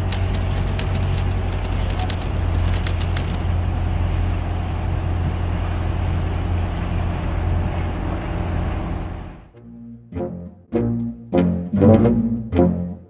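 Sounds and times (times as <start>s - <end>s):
water rushing along hull: 0.0s - 9.5s
boat engine droning: 0.0s - 12.9s.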